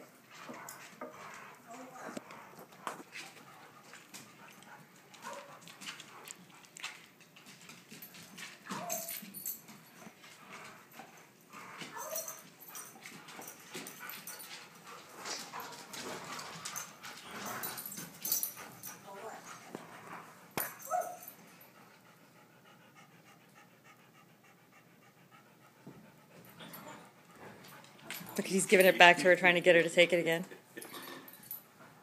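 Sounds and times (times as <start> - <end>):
dogs whining and yipping: 8.7 - 9.6, 11.8 - 14.5.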